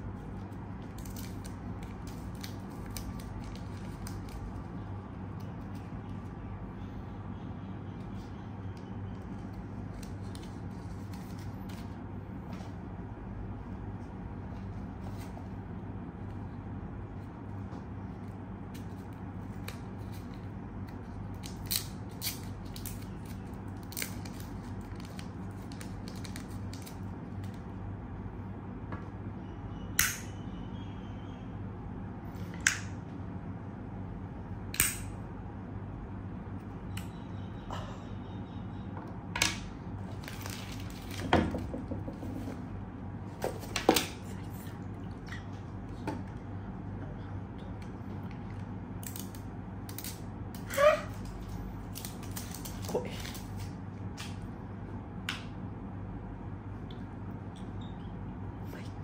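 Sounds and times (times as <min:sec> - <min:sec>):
low steady hum: 0:00.0 - 0:59.0
plastic wrapping crinkling: 0:00.8 - 0:04.7, 0:21.4 - 0:27.5, 0:40.0 - 0:41.3.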